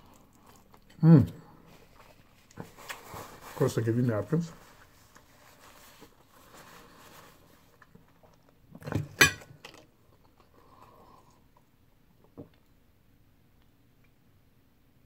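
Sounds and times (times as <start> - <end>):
chewing: 0.0 - 1.0
paper napkin rustling: 1.8 - 7.9.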